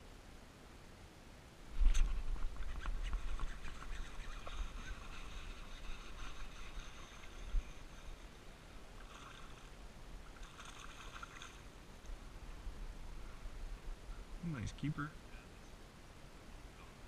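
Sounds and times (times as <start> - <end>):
fish thrashing and splashing: 9.0 - 9.7, 10.3 - 11.7.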